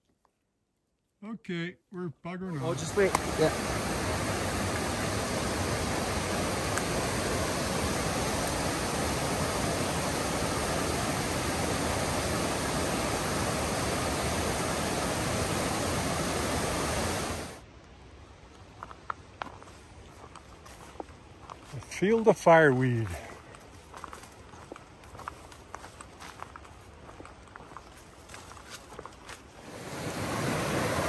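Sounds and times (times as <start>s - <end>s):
loud steady rushing noise: 2.6s - 17.6s, 29.6s - 31.0s.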